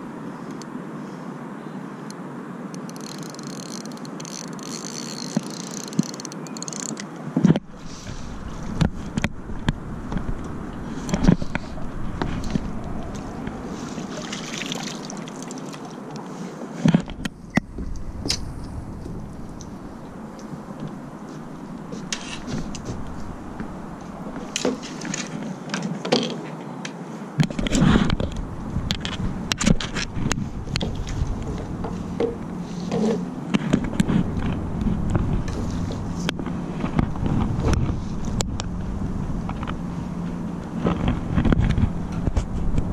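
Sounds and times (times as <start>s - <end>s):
wind rumble on microphone: 7.3s - 15.3s, 16.8s - 25.7s, 27.3s - 42.9s
water splashing: 11.4s - 16.3s
fish flapping in net on wood: 12.2s - 16.2s.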